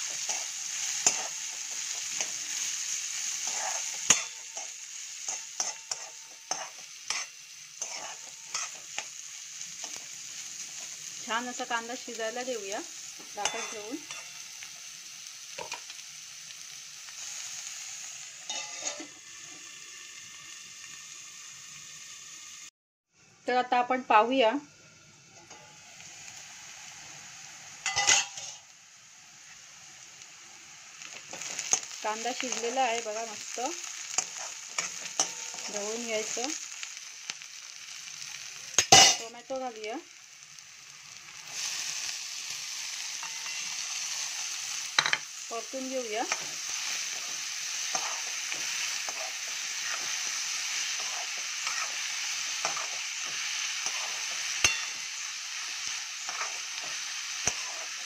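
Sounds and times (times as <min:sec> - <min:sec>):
onions sizzling in oil: 0:00.0 - 0:58.0
spoon scraping metal pan: 0:03.3 - 0:09.1, 0:13.4 - 0:14.4, 0:18.5 - 0:19.2, 0:27.8 - 0:28.6, 0:46.2 - 0:55.0, 0:56.2 - 0:58.0
steel cookware clink: 0:03.5 - 0:04.7, 0:13.4 - 0:14.4, 0:18.5 - 0:19.1, 0:27.8 - 0:28.6, 0:38.8 - 0:39.3, 0:43.2 - 0:43.7, 0:53.8 - 0:55.0
spoon clinking on pan: 0:13.4 - 0:14.4, 0:27.8 - 0:28.6, 0:54.6 - 0:55.0.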